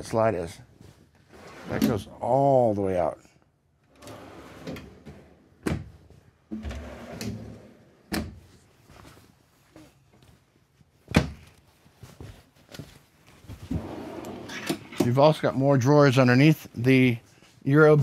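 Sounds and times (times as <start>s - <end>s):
drawers sliding open and shut: 1.2s - 2.2s, 3.8s - 8.4s, 13.7s - 15.2s.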